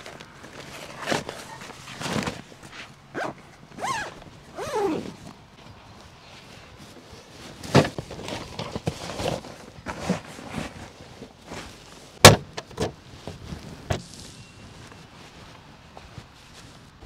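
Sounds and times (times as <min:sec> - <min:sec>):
plastic sheeting crinkling: 0:00.0 - 0:05.4.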